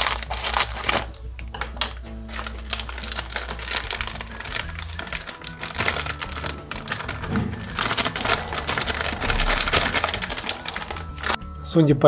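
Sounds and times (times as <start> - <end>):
plastic packet crinkling: 0.0 - 11.4
background music: 0.0 - 12.0
dry mix pouring into bowl: 2.3 - 11.4.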